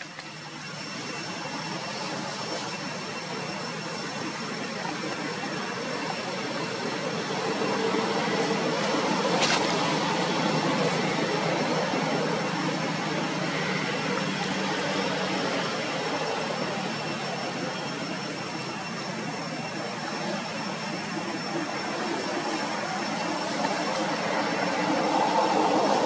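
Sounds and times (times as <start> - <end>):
road traffic rushing: 5.8 - 26.0.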